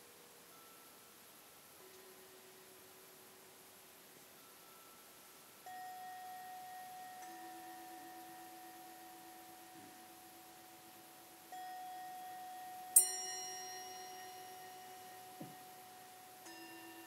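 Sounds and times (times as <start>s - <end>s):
bell-like chimes ringing: 4.4s - 17.0s.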